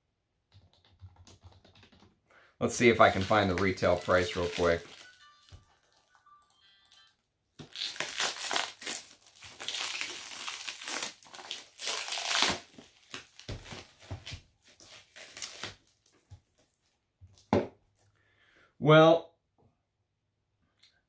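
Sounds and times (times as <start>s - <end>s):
packing material crinkling: 2.8s - 5.3s, 7.6s - 16.3s.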